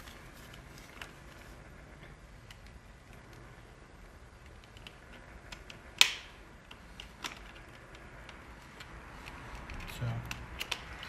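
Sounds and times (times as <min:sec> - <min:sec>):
sharp plastic snap: 0:04.6 - 0:07.5, 0:09.3 - 0:11.0.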